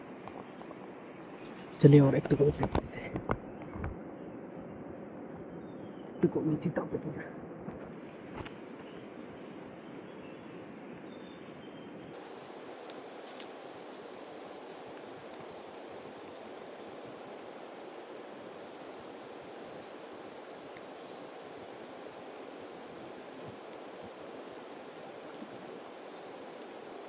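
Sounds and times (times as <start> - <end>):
rain falling: 12.1 - 27.0
river water rushing: 12.2 - 27.0.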